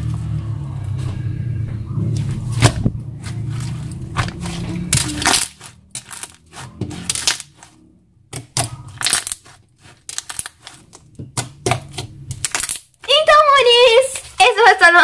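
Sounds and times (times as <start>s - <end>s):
sticky slime clicks and crackles: 8.4s - 13.1s.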